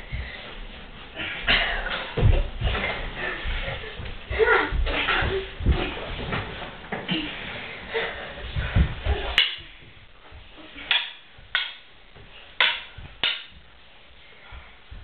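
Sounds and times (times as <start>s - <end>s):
stick thuds and knocks: 8.6s - 13.7s
stick swishing: 9.0s - 9.9s, 12.6s - 13.6s.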